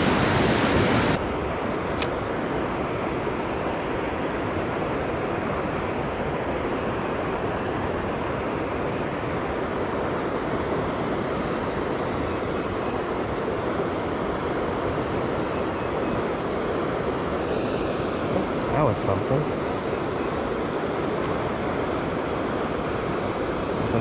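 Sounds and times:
creek water rushing over concrete: 5.1 - 24.0.

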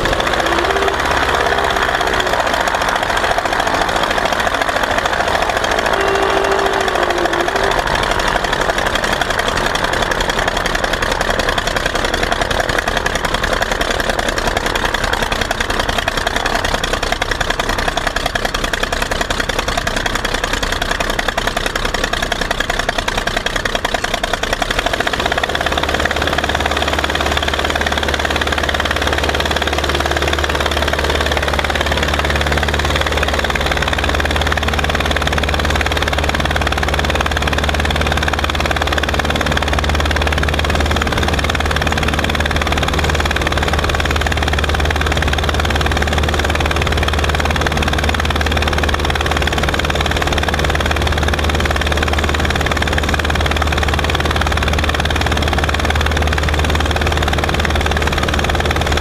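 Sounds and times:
aircraft engine running: 0.0 - 59.0.

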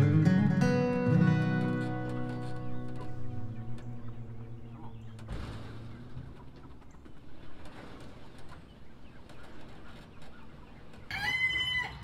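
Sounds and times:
acoustic guitar music: 0.0 - 6.8
birds calling: 0.0 - 12.0.

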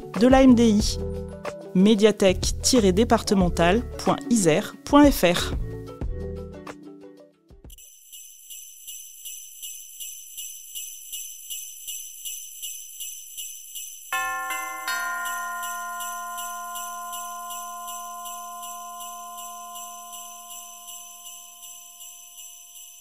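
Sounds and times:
jingle bells shaken: 7.7 - 23.0
ringing bell-like chord: 14.1 - 23.0.

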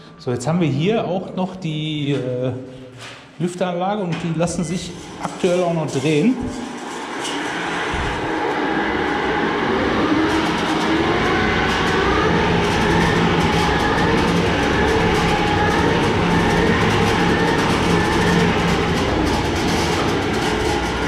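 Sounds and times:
hand-cranked blower whirring: 4.7 - 21.0.

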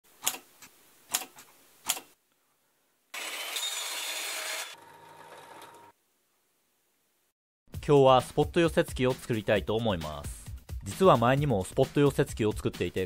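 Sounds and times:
chop saw cutting metal rod: 3.2 - 4.8.

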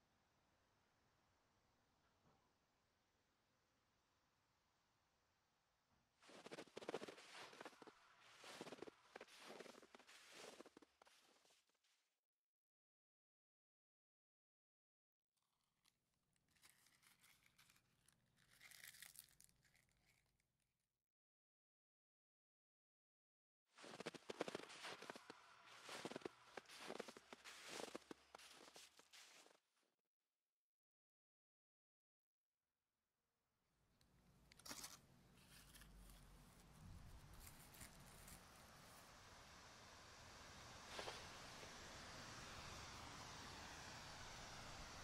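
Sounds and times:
crisp crackles or rustles: 16.4 - 20.2, 34.6 - 38.6
faint low hum: 34.0 - 45.0.

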